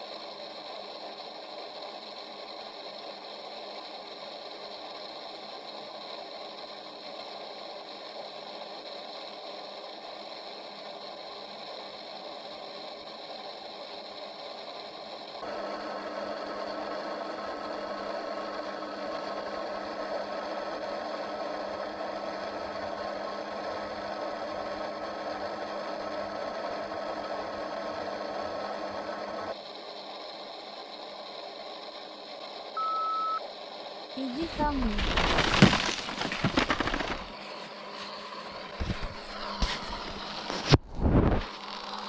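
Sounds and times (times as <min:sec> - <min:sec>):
faint whining radio tones: 0:29.6 - 0:42.0
radio static hiss: 0:34.2 - 0:41.8.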